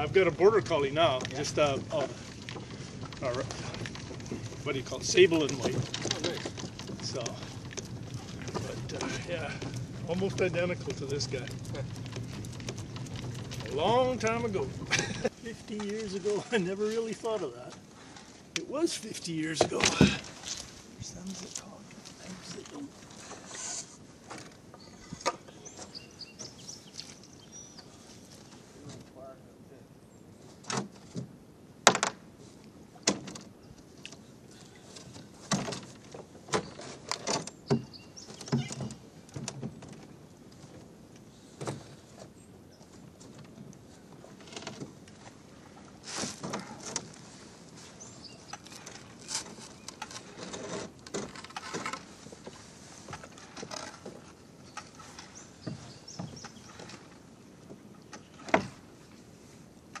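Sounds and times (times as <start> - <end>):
oars knocking in oarlocks: 0.0 - 18.8, 19.5 - 20.8, 30.6 - 32.2, 32.9 - 59.2
rowboat knocks and scrapes: 0.0 - 20.8, 22.2 - 27.2, 34.2 - 60.0.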